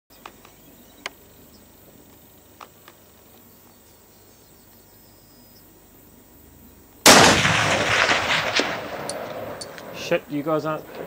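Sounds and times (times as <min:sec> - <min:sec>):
small ticks: 0:00.2 - 0:04.0
rifle shot with echo: 0:07.0 - 0:10.3.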